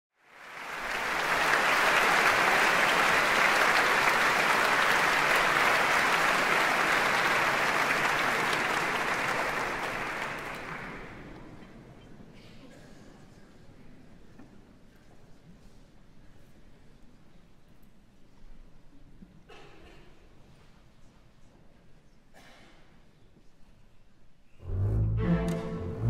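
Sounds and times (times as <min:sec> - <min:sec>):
audience applauding: 0:00.2 - 0:11.6.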